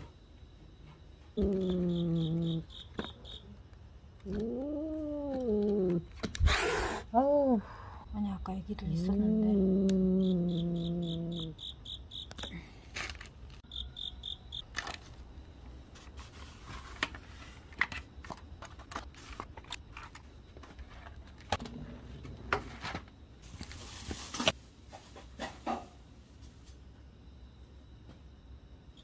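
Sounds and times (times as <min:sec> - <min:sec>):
insect chirping trill: 0:00.0 - 0:21.3, 0:22.9 - 0:29.0.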